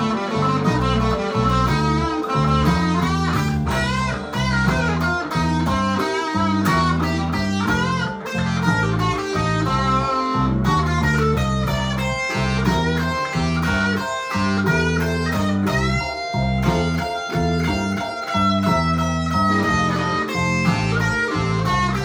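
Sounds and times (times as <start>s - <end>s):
bass line: 0.0s - 22.0s
electric guitar solo with bends: 0.0s - 22.0s.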